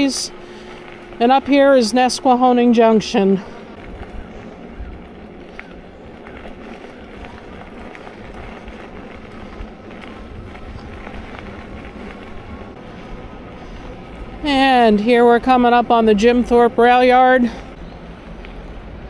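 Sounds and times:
bicycle tyre noise: 0:00.0 - 0:19.0
wind noise: 0:03.6 - 0:13.3.

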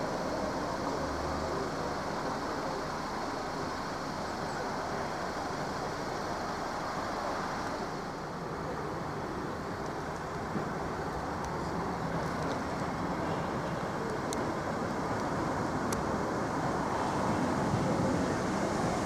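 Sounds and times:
road traffic passing cars: 0:00.0 - 0:19.0.

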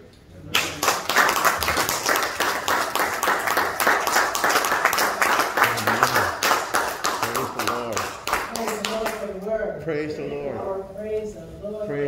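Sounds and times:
crowd clapping: 0:00.5 - 0:09.3.

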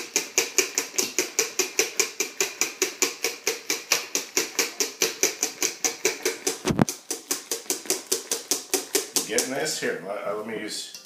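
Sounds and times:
wire whisk clicking in metal bowl: 0:00.0 - 0:09.6.

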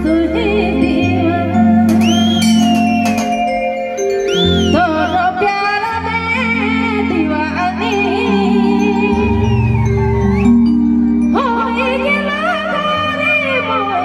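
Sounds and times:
woman singing into microphone: 0:00.0 - 0:02.4, 0:04.7 - 0:10.2, 0:11.3 - 0:14.0
keyboard chords and bass: 0:00.0 - 0:14.0.

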